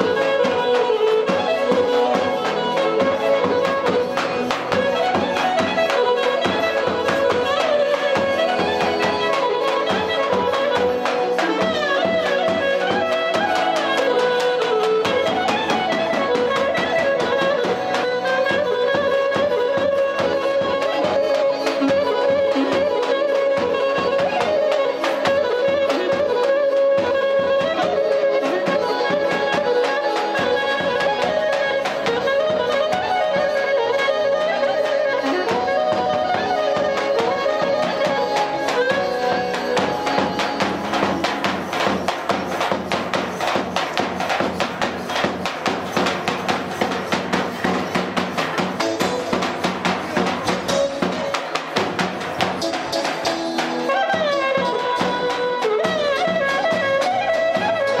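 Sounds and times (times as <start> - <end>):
clarinet melody: 0.0 - 58.0
large drum beating: 35.6 - 58.0.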